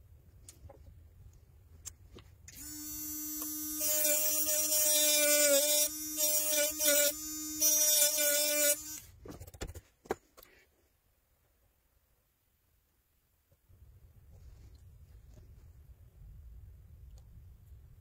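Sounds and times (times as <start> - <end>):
handheld electric tool grinding: 2.5 - 9.1.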